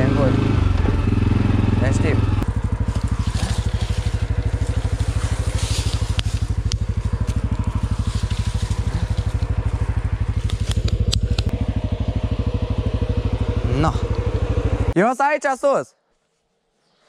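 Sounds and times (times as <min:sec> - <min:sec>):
engine running at low revs: 0:00.0 - 0:15.0
sharp snaps and clicks: 0:10.4 - 0:11.5.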